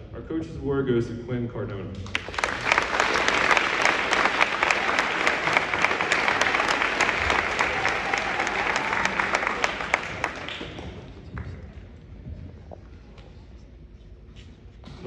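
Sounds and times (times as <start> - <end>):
audience applauding: 2.0 - 11.8.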